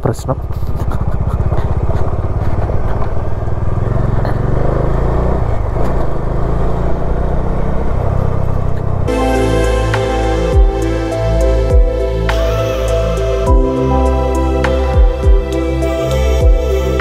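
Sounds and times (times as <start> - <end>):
motorcycle engine running: 0.0 - 11.0, 14.9 - 17.0
background music: 9.1 - 17.0.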